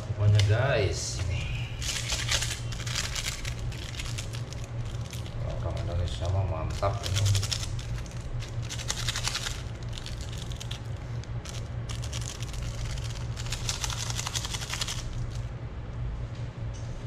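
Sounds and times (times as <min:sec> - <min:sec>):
steady low hum: 0:00.0 - 0:17.0
foil sachets crinkling: 0:01.8 - 0:15.5.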